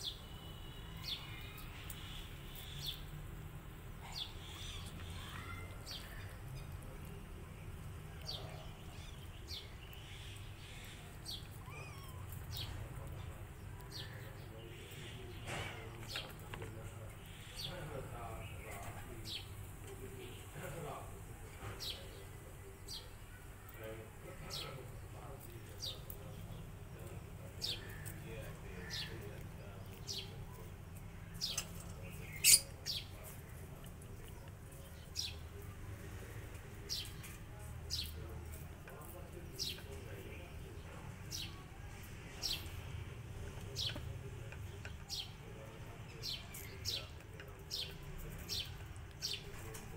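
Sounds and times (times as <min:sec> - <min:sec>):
birds chirping: 0:00.0 - 0:49.9.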